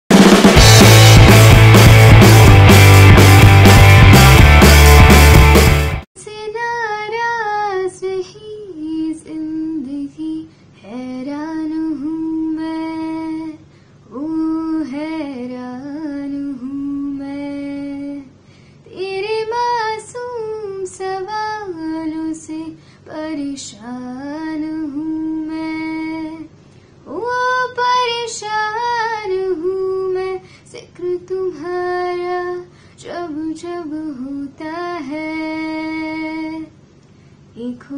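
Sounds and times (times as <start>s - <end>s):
rock music intro: 0.1s - 6.1s
woman singing unaccompanied: 6.2s - 26.5s, 27.1s - 36.8s, 37.5s - 37.9s.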